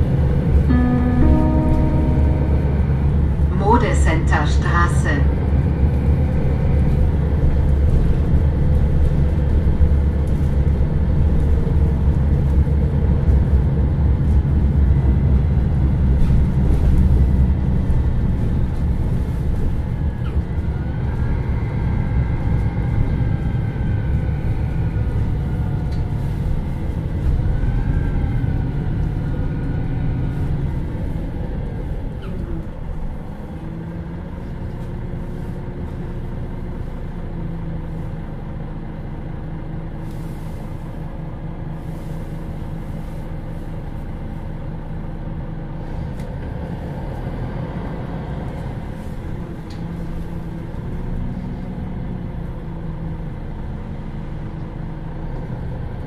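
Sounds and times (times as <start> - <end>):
bus diesel engine rumbling: 0.0 - 56.0.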